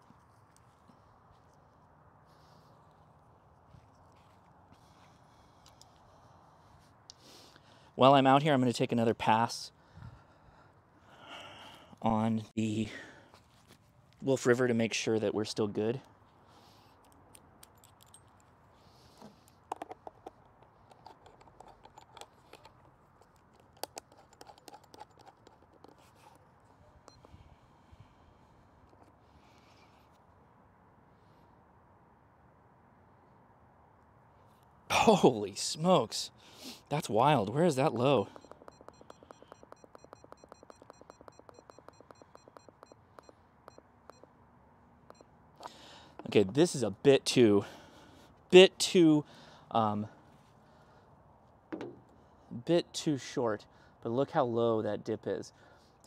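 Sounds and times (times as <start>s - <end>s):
rapid electronic ticking: 37.8s - 44.3s.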